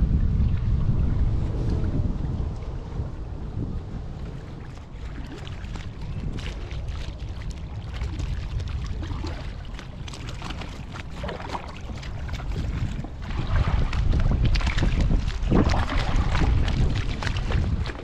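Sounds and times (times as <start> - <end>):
wind buffeting microphone: 0.0 - 18.0
paddle splashes: 4.0 - 18.0.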